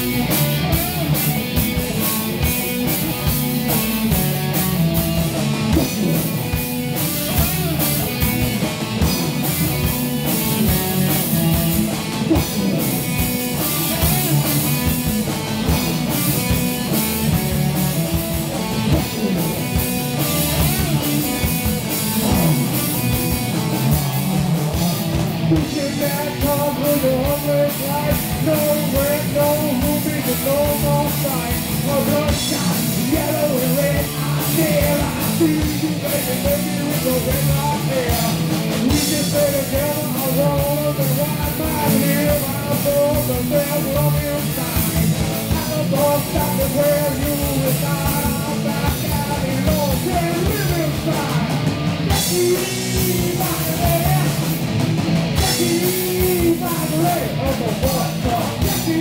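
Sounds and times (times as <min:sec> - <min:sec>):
bass: 0:00.0 - 0:59.0
drum kit: 0:00.0 - 0:59.0
electric guitars: 0:00.0 - 0:59.0
man singing into a microphone: 0:05.7 - 0:06.4, 0:12.1 - 0:13.0, 0:25.5 - 0:54.6, 0:55.4 - 0:59.0.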